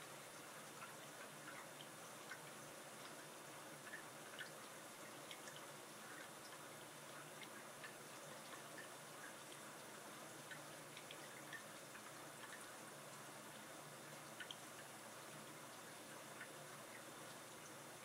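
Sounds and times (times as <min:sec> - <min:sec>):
water drips and trickles: 0:00.0 - 0:18.0.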